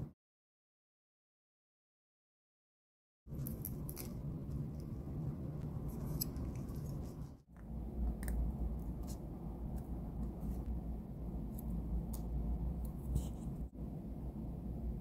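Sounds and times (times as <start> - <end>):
steady low hum: 3.3 - 15.0.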